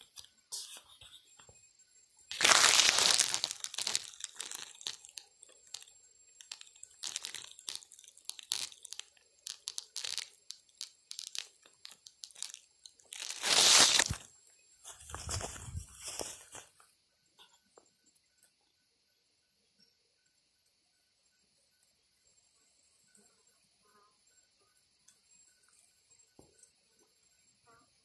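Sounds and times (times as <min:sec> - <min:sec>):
dry grass rustling and crunching: 0:02.3 - 0:05.2, 0:11.1 - 0:14.2, 0:14.9 - 0:16.7
small crackles: 0:02.3 - 0:17.5.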